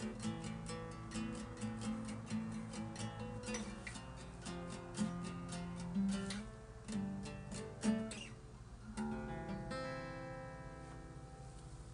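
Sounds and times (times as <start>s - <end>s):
acoustic guitar playing: 0.0s - 11.9s.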